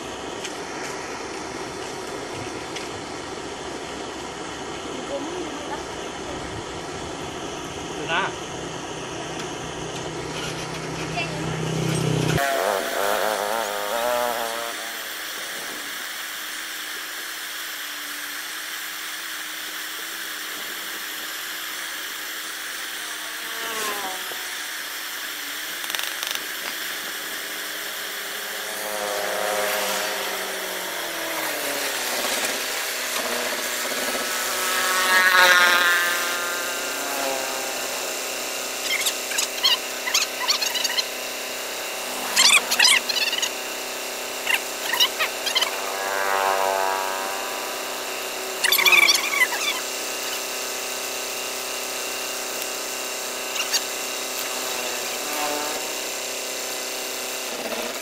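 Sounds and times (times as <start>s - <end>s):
steady hiss: 11.8s - 57.3s.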